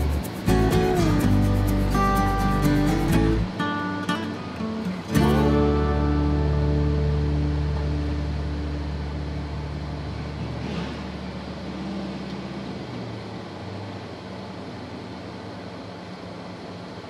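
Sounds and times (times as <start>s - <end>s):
guitar music: 0.0s - 11.4s
rush of noise: 0.0s - 17.0s
vehicle engine hum: 0.0s - 17.0s.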